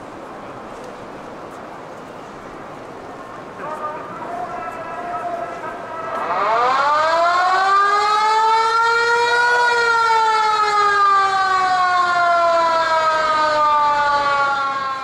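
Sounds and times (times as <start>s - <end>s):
stadium siren wailing: 3.4s - 15.0s.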